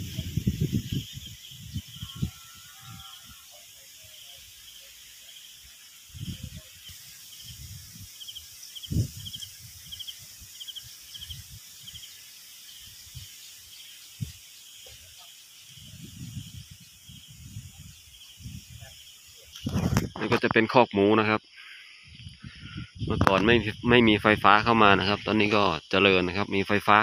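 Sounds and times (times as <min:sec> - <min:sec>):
wind thumps on microphone: 0:00.0 - 0:03.0, 0:08.8 - 0:10.1, 0:15.8 - 0:18.9, 0:19.6 - 0:20.6, 0:22.1 - 0:24.5
short chirping calls: 0:00.0 - 0:20.6
steady high hiss: 0:00.0 - 0:27.0.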